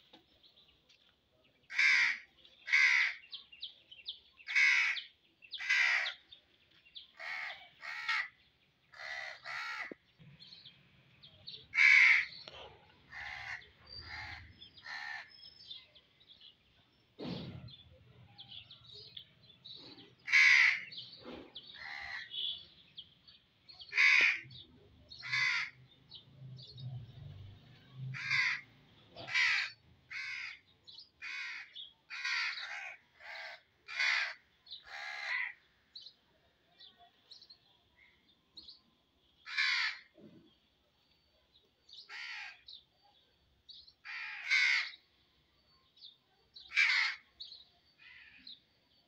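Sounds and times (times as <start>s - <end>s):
crows cawing: 1.7s - 3.3s, 4.5s - 6.2s, 7.2s - 10.0s, 11.7s - 15.3s, 20.2s - 21.1s, 21.8s - 22.4s, 23.9s - 24.6s, 25.2s - 25.8s, 28.1s - 35.6s, 39.4s - 40.1s, 42.1s - 42.6s, 44.0s - 45.0s, 46.7s - 47.3s, 48.0s - 48.4s.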